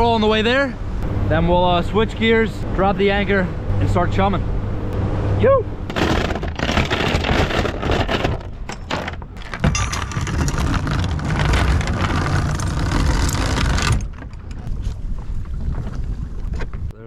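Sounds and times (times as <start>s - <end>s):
steady low rumble: 0.8s - 6.0s
anchor chain rattling and clanking: 5.9s - 14.7s.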